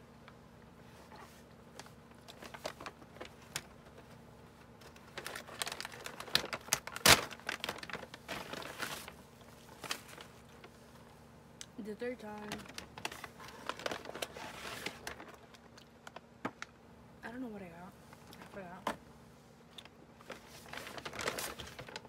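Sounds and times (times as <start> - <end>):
plastic packaging crinkling: 1.1 - 10.8, 12.1 - 16.8, 19.8 - 22.0.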